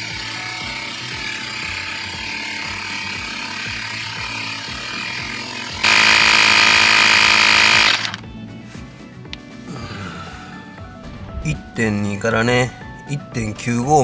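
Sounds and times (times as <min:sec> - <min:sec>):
tire inflator compressor running: 0:00.0 - 0:08.2.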